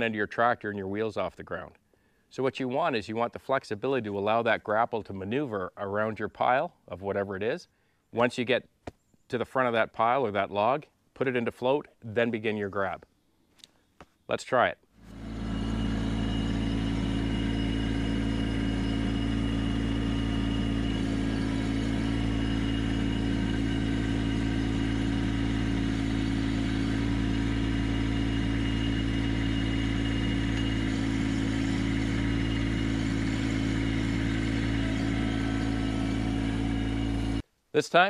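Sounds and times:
tractor diesel engine running: 0:15.0 - 0:37.4.

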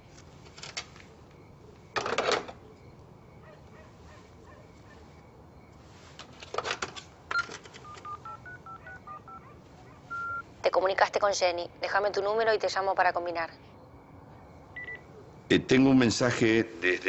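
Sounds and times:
phone keypad beeps: 0:07.3 - 0:09.5, 0:10.1 - 0:10.4, 0:14.7 - 0:15.1.

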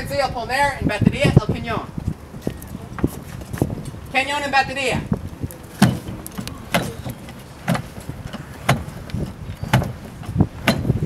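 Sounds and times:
wooden carriage knocking: 0:05.2 - 0:11.0.

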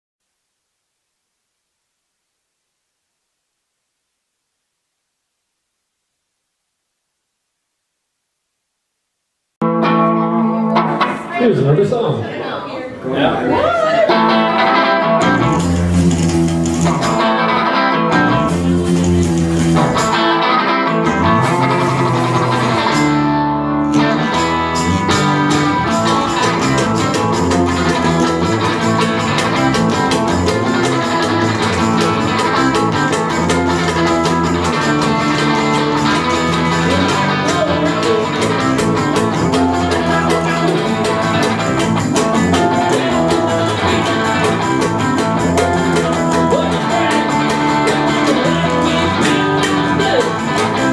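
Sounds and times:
live band strumming guitars: 0:09.6 - 0:12.2, 0:13.4 - 0:50.9.

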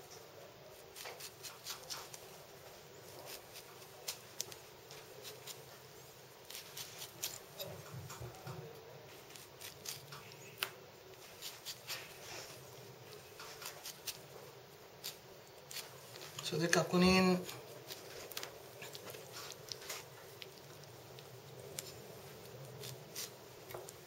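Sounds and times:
blade clicking and scraping fruit: 0:06.4 - 0:07.7, 0:09.3 - 0:10.7.

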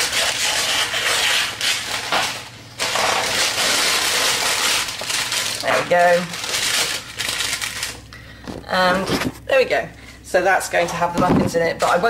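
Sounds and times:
baking paper crinkling: 0:00.0 - 0:09.4.

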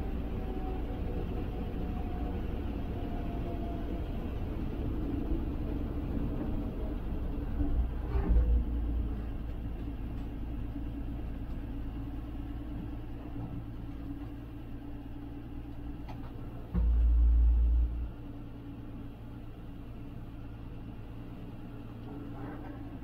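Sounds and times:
truck engine rumbling: 0:00.0 - 0:23.0
sudden loud low rumble: 0:16.6 - 0:18.9.

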